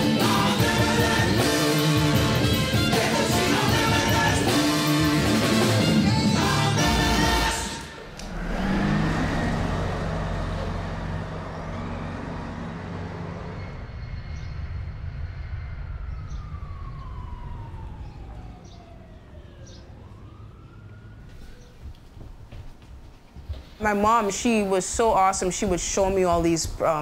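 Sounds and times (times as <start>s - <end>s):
siren wailing: 0.0s - 22.8s
bus engine: 0.0s - 23.8s
traffic rumble: 7.3s - 27.0s.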